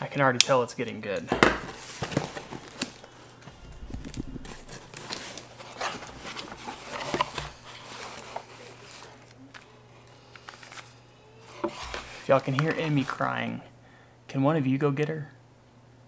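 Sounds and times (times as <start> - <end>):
paper and cardboard rustling: 1.6 - 13.4.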